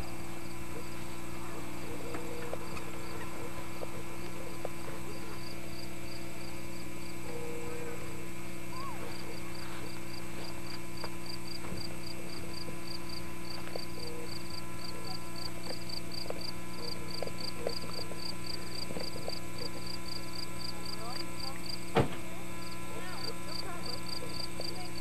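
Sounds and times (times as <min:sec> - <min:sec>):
electrical hum: 0:00.0 - 0:25.0
cricket chirping: 0:01.9 - 0:21.9.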